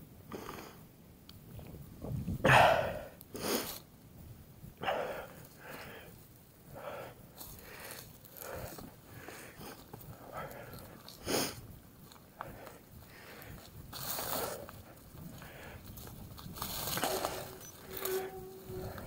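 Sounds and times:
heavy breathing: 0:04.8 - 0:19.0.

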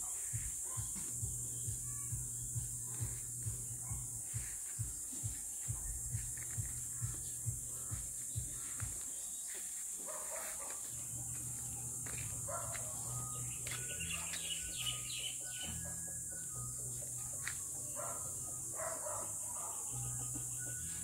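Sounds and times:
footsteps on concrete floor: 0:00.0 - 0:15.8, 0:17.2 - 0:18.2
steady high hiss: 0:00.0 - 0:15.8
birds chirping: 0:00.0 - 0:21.0
low wavering hum: 0:01.1 - 0:08.8, 0:10.9 - 0:18.8.

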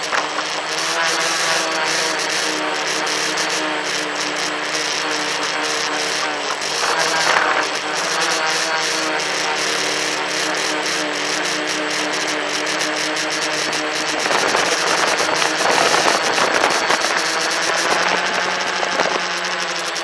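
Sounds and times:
drone motors and propellers: 0:00.0 - 0:20.0
air rushing over microphone: 0:13.4 - 0:19.4.

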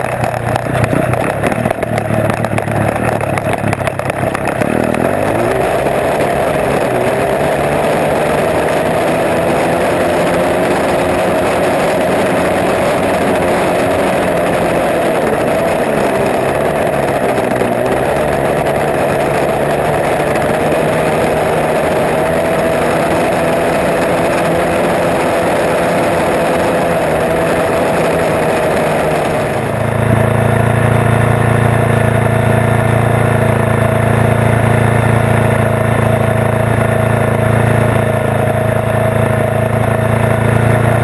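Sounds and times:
engine idling: 0:00.0 - 0:41.0
go-kart engine running hard: 0:00.0 - 0:41.0.

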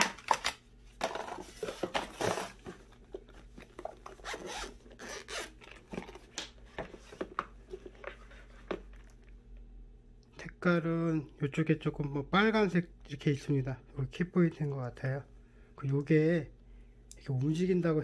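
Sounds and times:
zipper rasping: 0:04.2 - 0:05.7.

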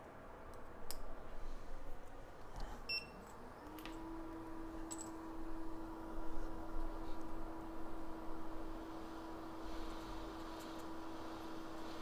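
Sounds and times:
small motor whining and humming: 0:03.6 - 0:12.0.

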